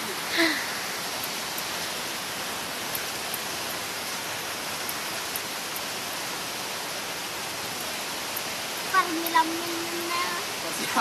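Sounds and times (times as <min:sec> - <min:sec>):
rain on wet ground: 0:00.0 - 0:11.0.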